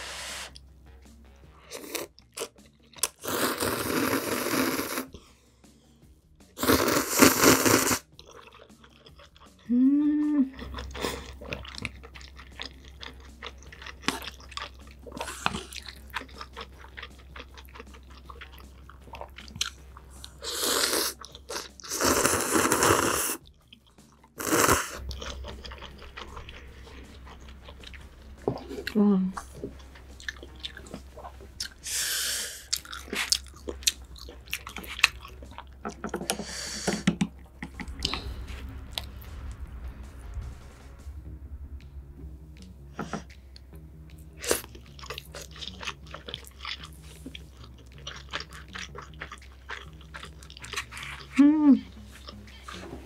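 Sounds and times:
slurping noodles: 0:01.7 - 0:05.2, 0:06.6 - 0:08.5, 0:20.3 - 0:23.4, 0:24.3 - 0:27.8, 0:30.2 - 0:37.1
wet chewing: 0:01.7 - 0:05.3, 0:06.6 - 0:09.7, 0:10.6 - 0:38.4, 0:44.1 - 0:53.0.

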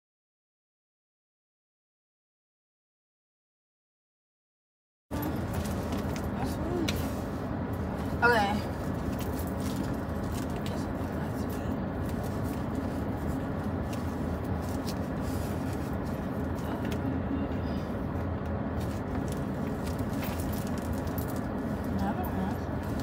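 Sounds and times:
car cabin hum and hiss: 0:05.1 - 0:23.0.

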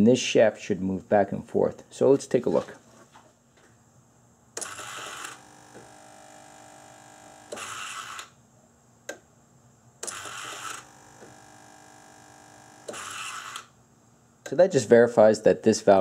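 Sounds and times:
stepper motor whirring: 0:04.6 - 0:08.3, 0:10.0 - 0:13.7.

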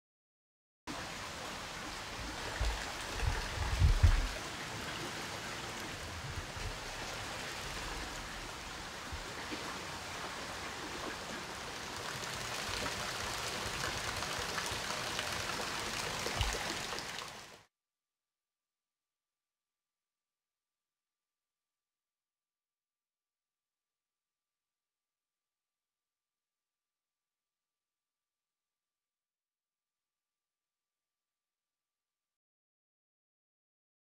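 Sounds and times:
water flowing and splashing: 0:00.9 - 0:17.7
dull low thumps: 0:02.6 - 0:04.4.

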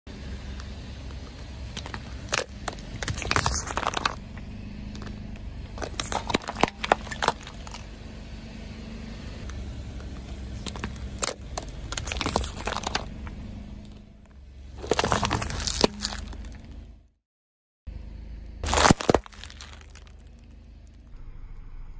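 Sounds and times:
car humming: 0:00.1 - 0:17.2, 0:17.9 - 0:21.9
tyre crunching plastic tubs: 0:01.7 - 0:04.3, 0:05.7 - 0:07.9, 0:10.1 - 0:13.1, 0:14.8 - 0:16.7, 0:18.6 - 0:20.4.

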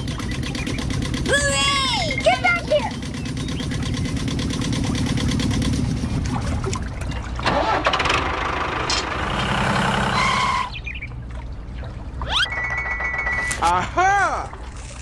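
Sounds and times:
small engine chugging: 0:00.0 - 0:06.2.

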